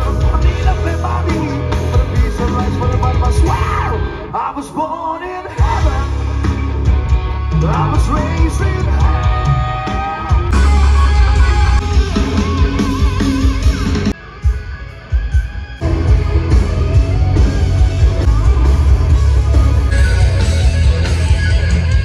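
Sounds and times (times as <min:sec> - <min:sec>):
person singing: 0:00.0 - 0:06.6
loud rock band with heavy bass: 0:00.0 - 0:22.0.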